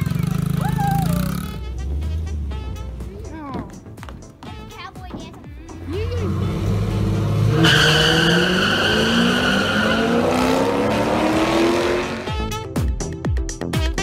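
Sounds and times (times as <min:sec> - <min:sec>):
car engines accelerating: 0:05.7 - 0:12.6
tyre squeal: 0:07.4 - 0:11.0.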